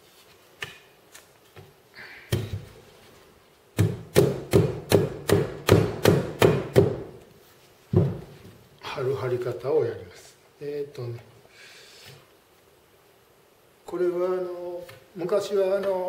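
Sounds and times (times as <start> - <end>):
hammer knocking wooden frame: 3.8 - 7.1, 7.9 - 8.3.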